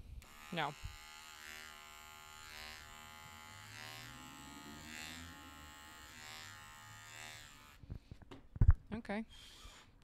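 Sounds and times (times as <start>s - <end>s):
electric hair clippers buzzing: 0.2s - 7.8s.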